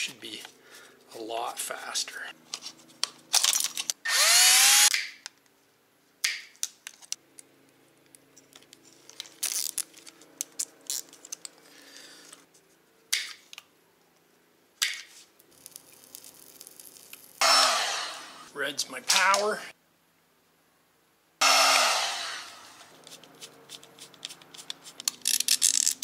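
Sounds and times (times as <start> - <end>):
plastic parts clicking and rattling: 2.5 - 4.0, 23.1 - 26.0
power screwdriver whine: 4.1 - 4.9, 17.4 - 18.5, 21.4 - 22.9.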